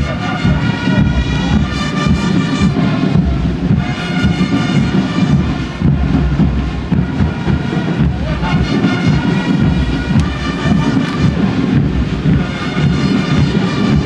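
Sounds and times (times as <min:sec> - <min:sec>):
marching band music: 0:00.0 - 0:14.0.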